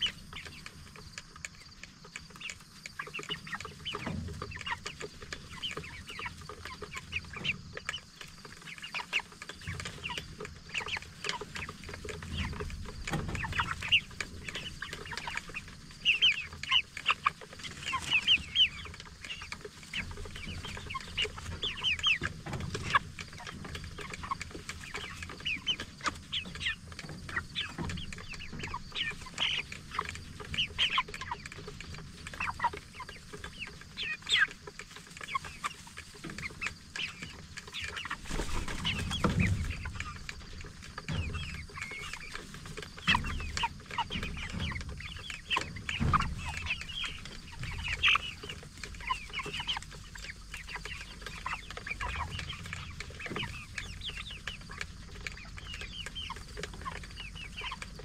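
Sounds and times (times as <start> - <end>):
chickens peeping and clucking: 0.0 - 58.0.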